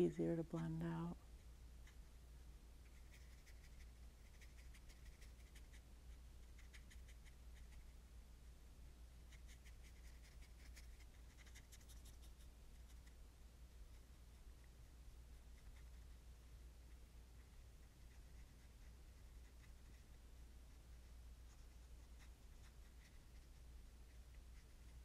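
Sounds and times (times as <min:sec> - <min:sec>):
low steady hum: 0:00.0 - 0:25.0
paintbrush scratching on paper: 0:02.8 - 0:08.0, 0:09.3 - 0:13.2, 0:13.8 - 0:16.2, 0:16.9 - 0:25.0.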